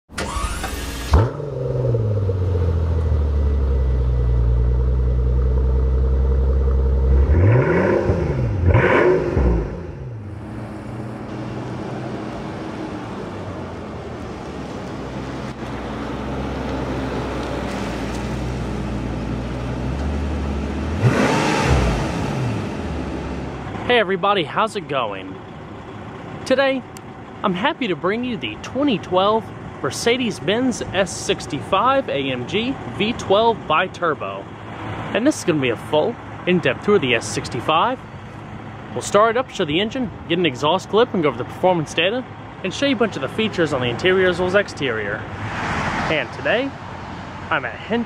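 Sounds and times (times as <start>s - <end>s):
car engine idling and revving: 0.1s - 48.0s.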